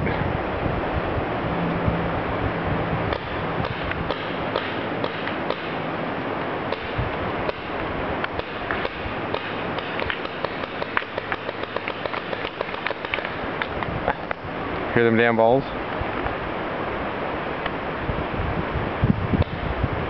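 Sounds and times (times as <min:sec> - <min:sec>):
steady rushing hiss: 0:00.0 - 0:20.0
paintballs hitting trees and ground: 0:03.1 - 0:05.9, 0:06.7 - 0:13.8.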